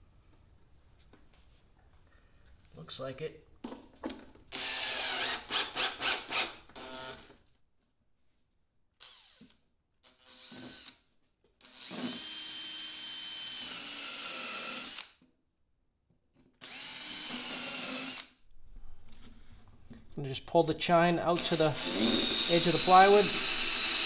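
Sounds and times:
cordless drill boring through wood: 4.5s - 7.4s, 9.0s - 11.0s, 11.6s - 15.2s, 16.6s - 18.4s, 21.3s - 24.0s.

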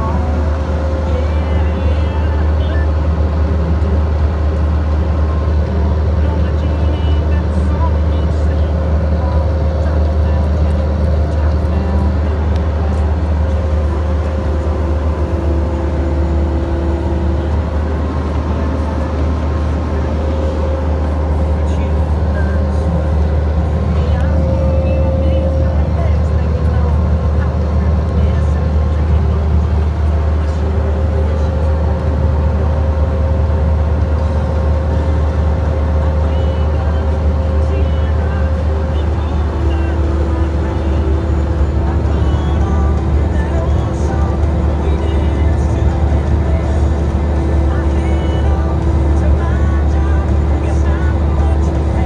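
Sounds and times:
diesel engine drone: 0.0s - 52.0s
high steady tone: 11.4s - 34.4s.

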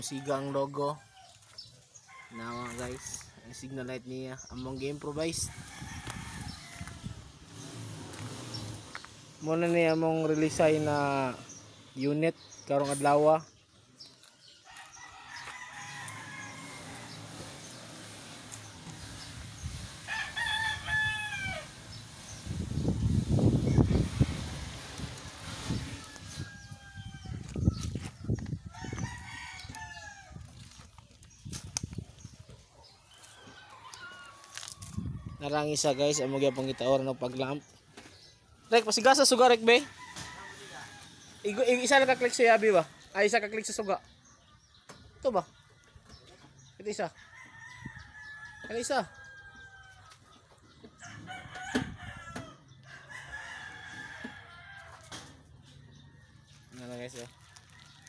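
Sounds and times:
rooster crowing and clucking: 0.0s - 4.3s, 5.2s - 11.9s, 14.2s - 31.7s, 32.8s - 37.6s, 39.6s - 43.3s, 47.1s - 58.0s
rooster crowing: 5.5s - 7.3s, 14.7s - 17.6s, 20.0s - 21.8s, 25.6s - 28.0s, 28.7s - 30.6s, 39.8s - 42.9s, 51.0s - 55.3s.

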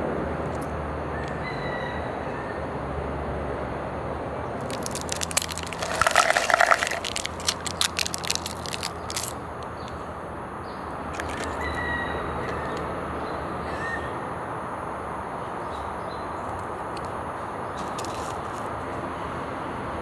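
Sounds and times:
foil seal crinkling: 4.6s - 9.4s.

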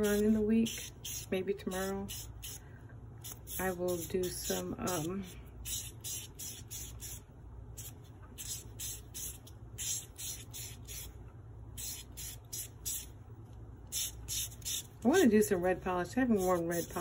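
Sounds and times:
nail buffer scratching fingernails: 16.3s - 17.0s.

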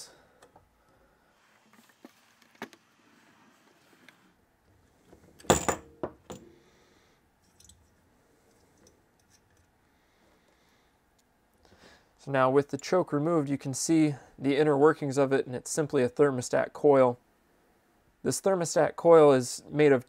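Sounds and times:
metal parts clicking and clinking: 7.4s - 7.9s.

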